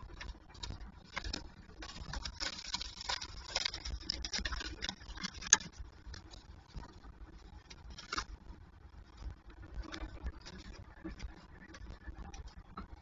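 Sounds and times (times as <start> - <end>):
talons scratching wood: 0.0 - 8.4.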